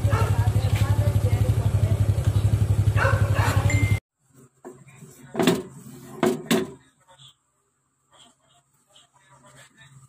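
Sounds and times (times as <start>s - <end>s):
small engine idling: 0.0s - 4.0s.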